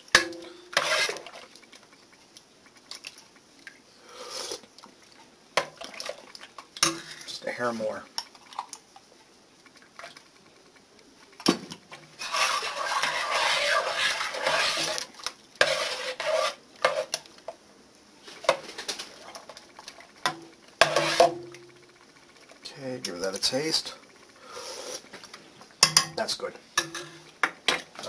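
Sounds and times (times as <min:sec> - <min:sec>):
metal spoon scraping pot: 0:00.2 - 0:01.4, 0:12.1 - 0:17.2, 0:20.3 - 0:21.4.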